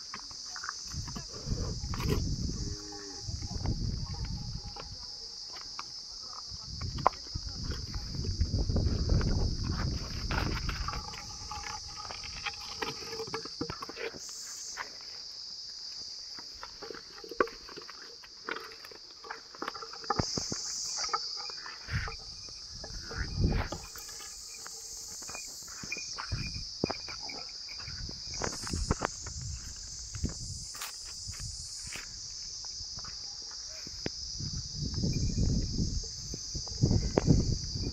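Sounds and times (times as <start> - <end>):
high-pitched insect drone: 0.0 - 37.9
buffalo footsteps on dirt: 7.9 - 30.3.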